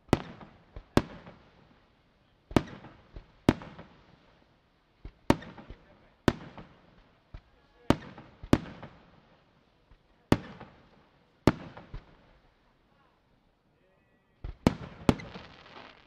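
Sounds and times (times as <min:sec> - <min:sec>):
small firework pops: 0:00.1 - 0:01.5, 0:02.5 - 0:04.0, 0:05.0 - 0:09.0, 0:09.9 - 0:12.4, 0:14.4 - 0:16.0
firework shells bursting: 0:14.7 - 0:16.0.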